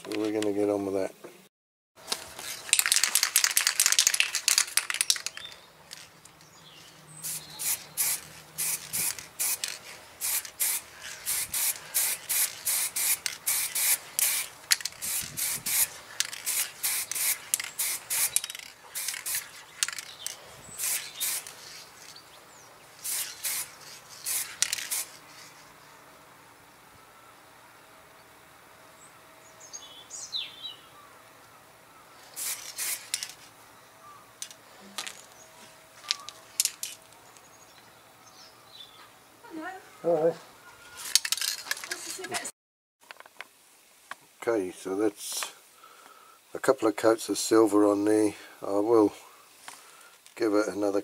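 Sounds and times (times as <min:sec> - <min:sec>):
spray paint can hissing: 0:02.4 - 0:06.1, 0:07.1 - 0:22.2, 0:23.0 - 0:25.6, 0:32.3 - 0:33.5.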